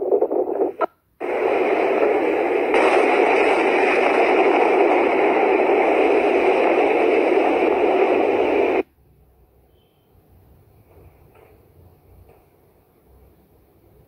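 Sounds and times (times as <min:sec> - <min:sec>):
steady static rushing noise: 0:00.0 - 0:08.9.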